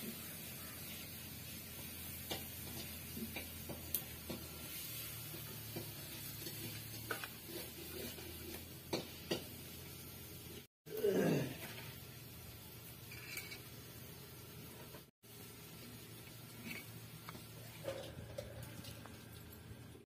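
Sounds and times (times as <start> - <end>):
faint steady hiss: 9.4 - 20.0.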